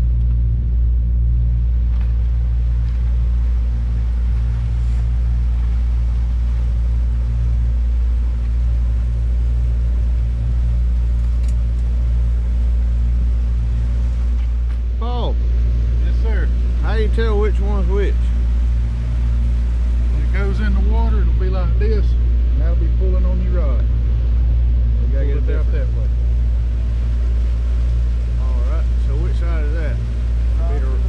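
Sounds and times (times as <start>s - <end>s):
outboard motor droning: 0.0s - 31.0s
faint gear clicks: 11.0s - 12.0s.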